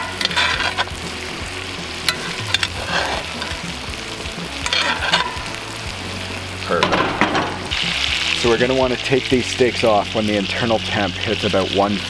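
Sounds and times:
metal spoon scraping a pan: 0:00.0 - 0:01.2, 0:01.9 - 0:03.8, 0:04.6 - 0:05.6
steaks sizzling in a skillet: 0:00.0 - 0:12.0.

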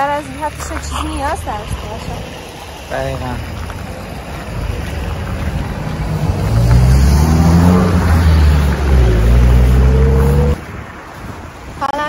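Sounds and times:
cars driving past: 0:00.0 - 0:12.0.

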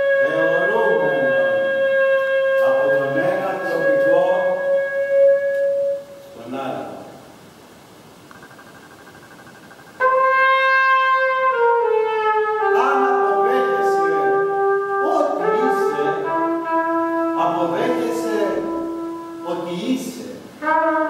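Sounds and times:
trumpet long held notes: 0:00.0 - 0:06.3, 0:10.0 - 0:19.8, 0:20.6 - 0:21.0
short wavering bursts: 0:08.3 - 0:11.0.

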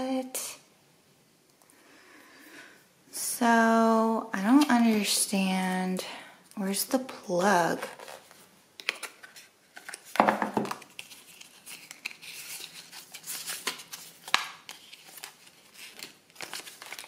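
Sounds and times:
paper packaging rustling: 0:07.8 - 0:17.0.

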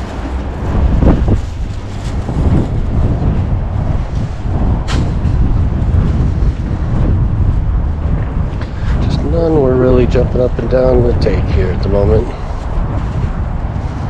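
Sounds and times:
car cabin road rumble: 0:00.0 - 0:14.0.

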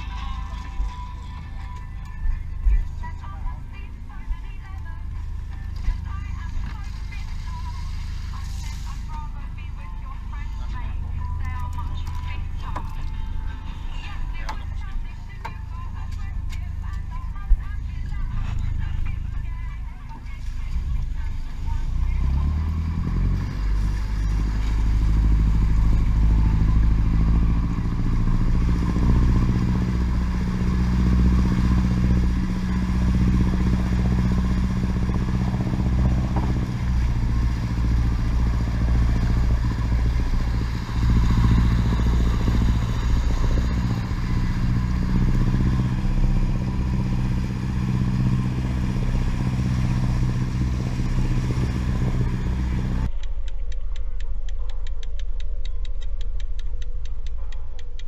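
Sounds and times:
boat engine running: 0:00.0 - 0:58.0
water wash of wake: 0:23.6 - 0:53.1.

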